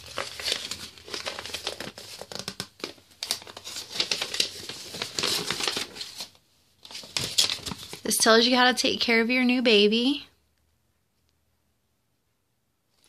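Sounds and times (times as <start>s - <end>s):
paper crinkling and rustling: 0.0s - 8.2s.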